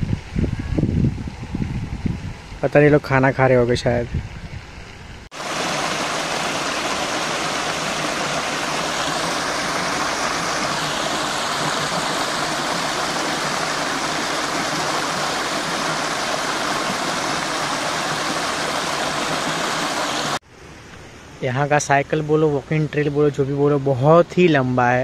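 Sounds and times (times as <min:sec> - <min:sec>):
small waterfall splashing: 0:05.3 - 0:20.4.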